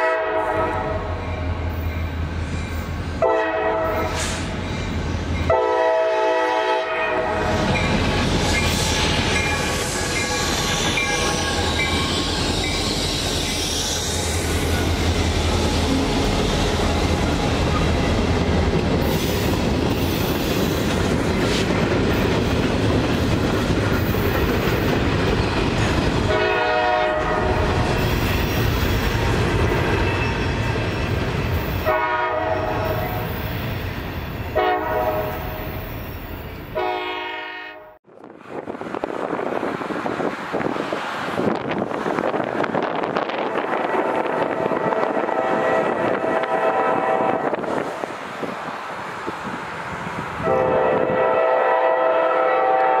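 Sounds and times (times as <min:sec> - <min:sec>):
locomotive horn blowing: 0:00.0 - 0:01.2, 0:03.2 - 0:04.2, 0:05.5 - 0:07.7, 0:09.5 - 0:12.1, 0:26.3 - 0:27.8, 0:31.8 - 0:33.3, 0:34.5 - 0:35.7, 0:36.8 - 0:38.0, 0:43.8 - 0:47.6, 0:50.4 - 0:53.0
train wheels clickety-clack: 0:03.8 - 0:05.5, 0:07.5 - 0:32.0
locomotives rumbling past: 0:07.2 - 0:36.8.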